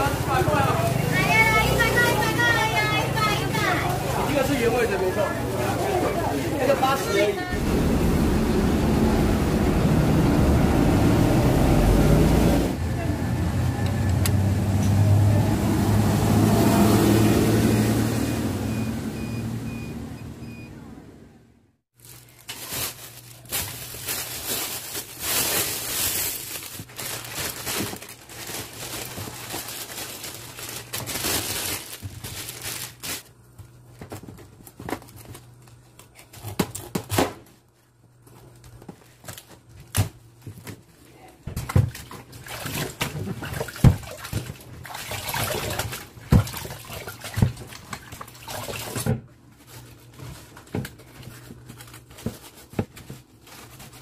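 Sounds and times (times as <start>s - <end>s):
cabbage leaves rustling: 22.0s - 33.3s.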